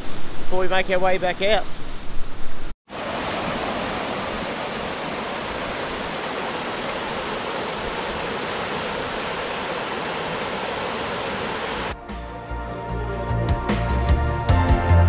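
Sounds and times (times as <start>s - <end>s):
river rushing over rapids: 2.9s - 11.9s.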